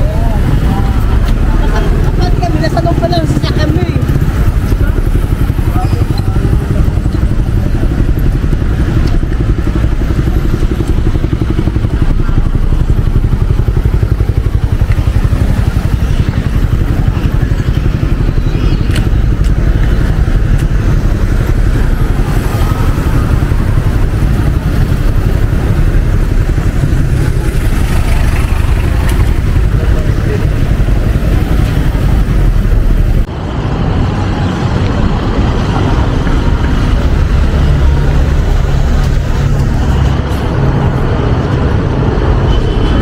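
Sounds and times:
motorcycle and car engines: 0:00.0 - 0:43.0.

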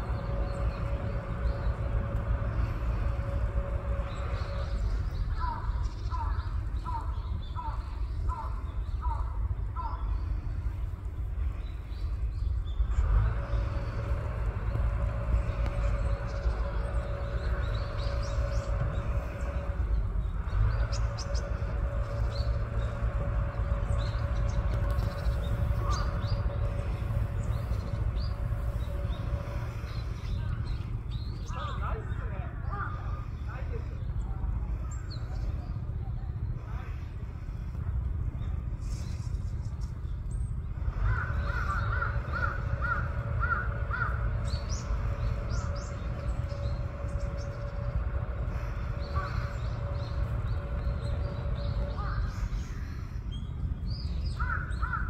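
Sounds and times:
faint steady hum: 0:00.0 - 0:55.0
low rumbling on microphone: 0:00.0 - 0:55.0
crow cawing: 0:41.0 - 0:44.2, 0:54.4 - 0:55.0.

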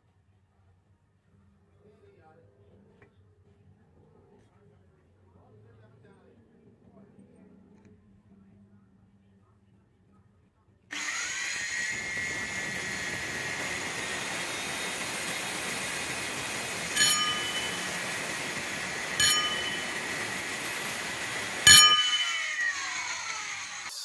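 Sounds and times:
angle grinder whining: 0:10.9 - 0:24.0
grinder screeching cutting steel: 0:10.9 - 0:24.0.

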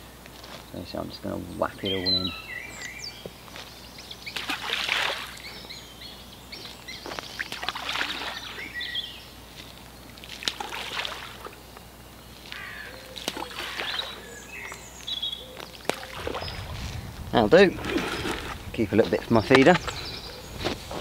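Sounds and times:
small birds chirping: 0:00.0 - 0:21.0
bait splashing into water: 0:04.3 - 0:05.4, 0:07.4 - 0:08.6, 0:10.2 - 0:11.6, 0:13.2 - 0:14.8, 0:15.8 - 0:16.8.

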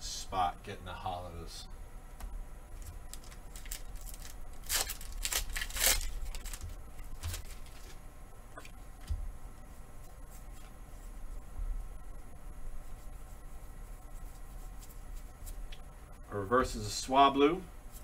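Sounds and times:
foil wrapper crinkling: 0:02.8 - 0:08.0
foil wrapper ripping: 0:02.8 - 0:08.0
handling trading cards: 0:02.8 - 0:08.0.

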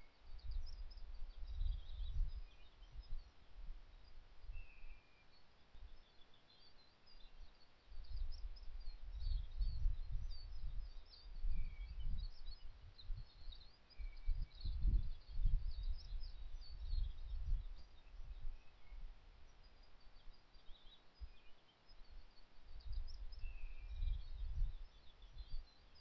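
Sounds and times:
wind buffeting microphone: 0:00.3 - 0:03.2, 0:08.0 - 0:19.0, 0:22.8 - 0:25.6
birds singing and chirping: 0:04.6 - 0:26.0.

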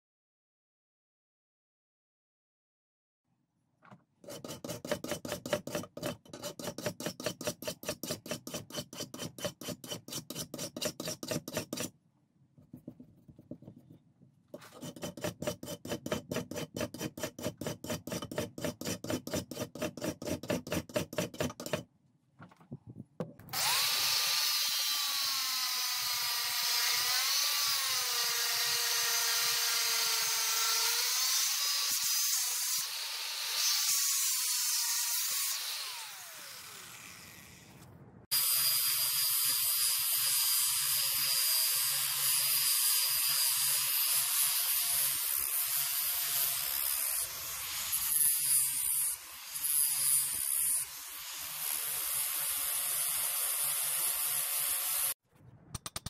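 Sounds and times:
file strokes on metal blade: 0:04.2 - 0:11.9, 0:14.5 - 0:21.8
angle grinder whining: 0:23.5 - 0:37.7.

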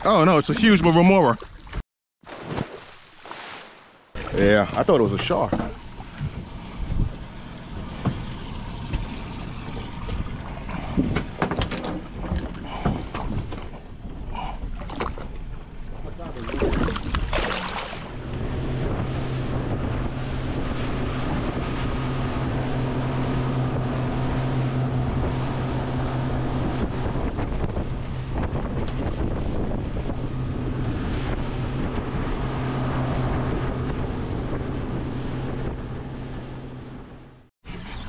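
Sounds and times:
water rushing along hull: 0:00.0 - 0:37.5
boat engine humming: 0:04.0 - 0:38.0
wind buffeting microphone: 0:18.1 - 0:36.5.

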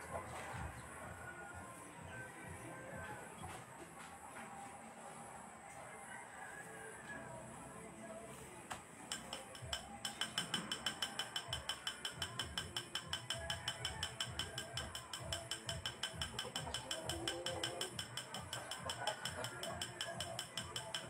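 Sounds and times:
rapid even clicking: 0:09.1 - 0:21.0.

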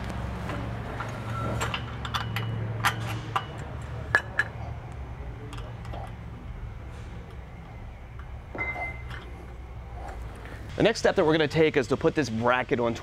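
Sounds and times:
steady low hum: 0:00.0 - 0:13.0
metal clinks and taps: 0:01.6 - 0:04.6.

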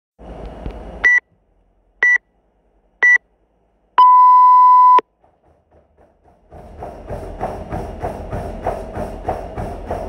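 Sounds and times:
long lower beep: 0:04.0 - 0:05.0
short high beeps: 0:04.0 - 0:05.0.

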